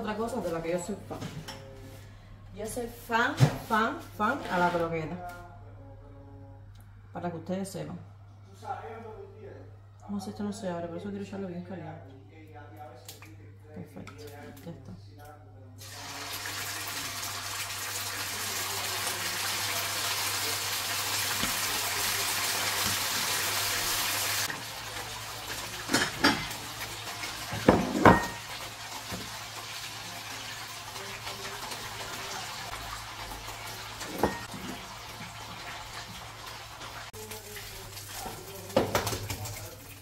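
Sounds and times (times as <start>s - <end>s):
steady kitchen hiss: 15.8s - 40.0s
kitchenware knocks: 27.5s - 28.5s, 34.1s - 34.8s.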